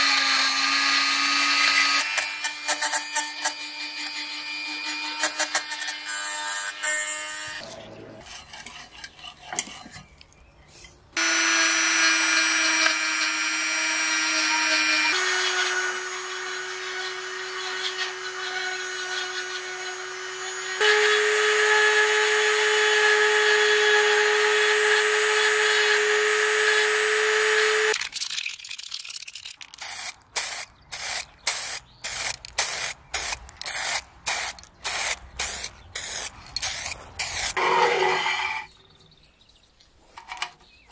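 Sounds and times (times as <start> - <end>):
rotary tool grinding metal: 0.0 - 10.1, 11.2 - 21.3, 29.7 - 38.7.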